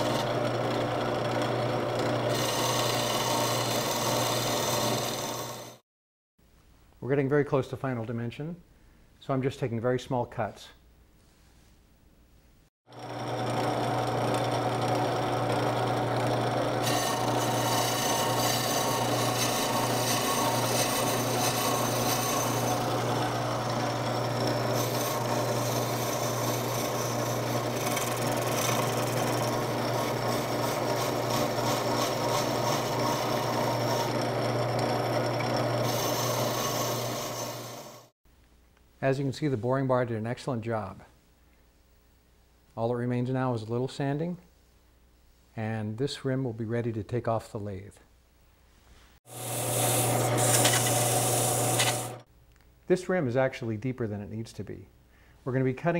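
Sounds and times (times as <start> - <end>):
cutter scraping wood: 0.0 - 5.8, 13.0 - 38.1, 49.3 - 52.3
lathe motor hum: 0.0 - 5.8, 13.0 - 38.1, 49.3 - 52.2.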